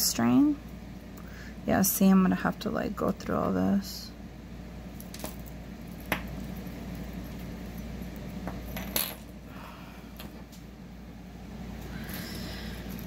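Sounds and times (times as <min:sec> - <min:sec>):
metal jewelry clinking: 0:05.0 - 0:09.3.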